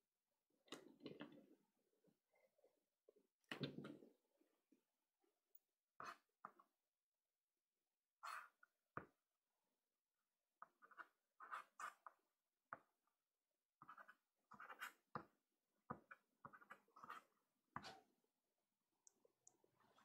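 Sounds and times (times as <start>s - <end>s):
pastel stick scratching paper: 8.2s - 8.6s, 10.6s - 12.2s, 13.8s - 15.2s, 16.1s - 18.1s.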